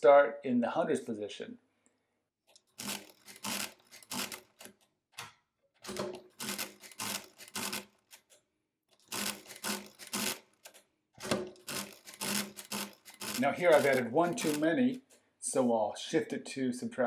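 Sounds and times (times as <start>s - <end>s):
mechanical calculator gears clattering: 2.5s - 4.7s, 5.8s - 8.3s, 9.0s - 14.7s
hand crank turning: 2.5s - 4.8s, 5.9s - 8.3s, 9.0s - 14.7s.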